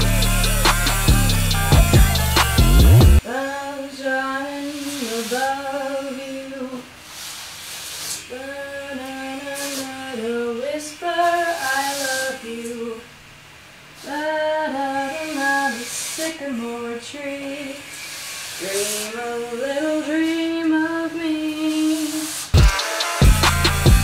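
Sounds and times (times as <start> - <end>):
woman singing unaccompanied: 0.0 - 7.0, 8.2 - 13.2, 14.0 - 18.0, 18.6 - 22.5
broom sweeping wooden floor: 4.4 - 10.4, 11.0 - 12.8, 14.8 - 17.3, 17.9 - 23.8.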